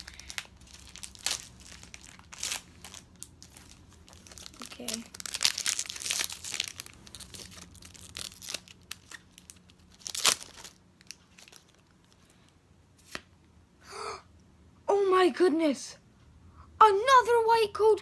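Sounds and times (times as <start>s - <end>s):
foil wrapper tearing and crinkling: 0.0s - 12.2s.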